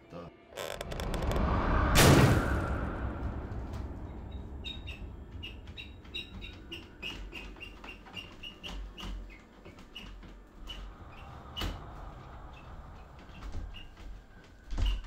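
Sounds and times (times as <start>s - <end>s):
low rumble: 0.6s - 7.1s
high bird-like chirps: 4.2s - 8.3s.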